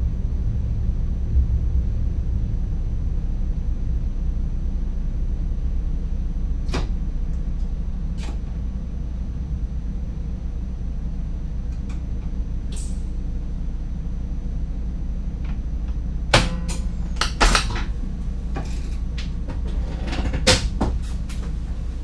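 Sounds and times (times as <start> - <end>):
train cab hum: 0.0 - 22.0.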